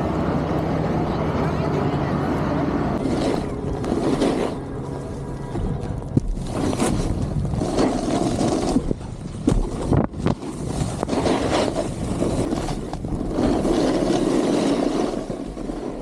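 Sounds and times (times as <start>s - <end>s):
wind on microphone: 2.9s - 16.0s
snowboard scraping on snow: 3.0s - 5.2s, 6.2s - 16.0s.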